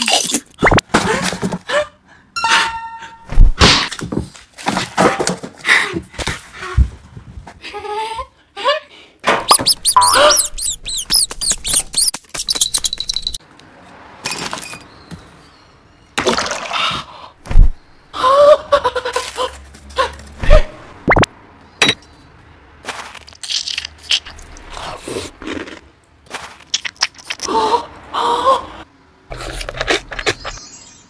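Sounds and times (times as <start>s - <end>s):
comic thumps: 3.3s - 3.9s, 9.4s - 12.0s, 17.5s - 17.8s
squeaky mouse-like chirps: 9.5s - 13.4s.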